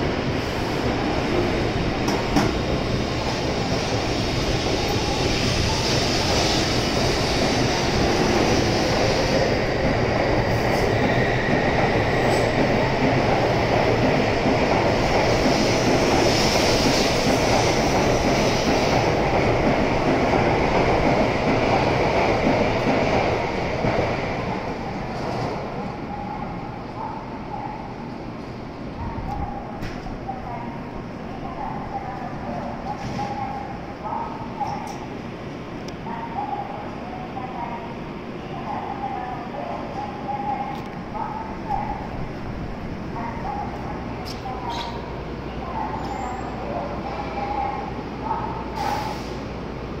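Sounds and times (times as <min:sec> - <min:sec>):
train wheels rumbling: 0:00.0 - 0:25.8
train hiss: 0:03.8 - 0:09.5, 0:15.3 - 0:19.1, 0:48.6 - 0:49.7.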